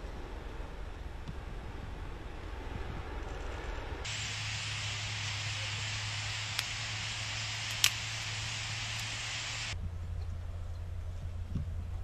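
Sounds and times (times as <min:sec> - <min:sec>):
low hum: 0:00.0 - 0:12.0
wind rumble on microphone: 0:00.0 - 0:12.0
steady hiss: 0:02.2 - 0:09.8.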